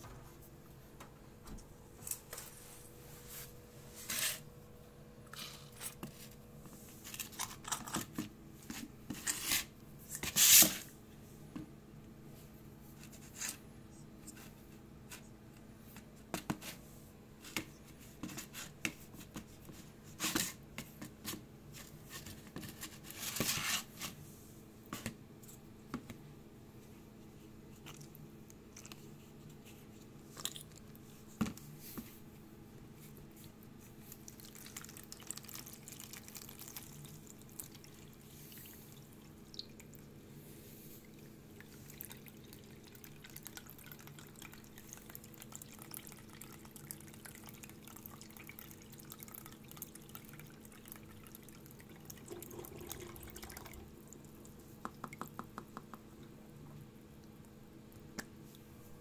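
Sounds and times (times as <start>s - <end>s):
low steady hum: 0.0s - 59.0s
water splashing into plastic tub: 51.9s - 55.3s.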